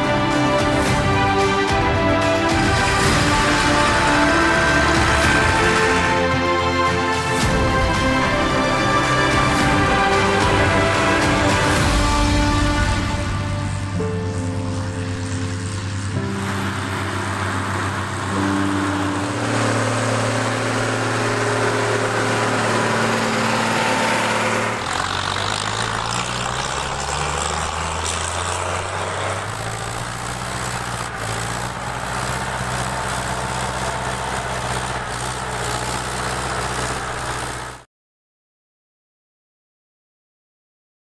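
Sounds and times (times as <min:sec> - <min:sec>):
diesel tractor engines running: 0:00.0 - 0:37.9.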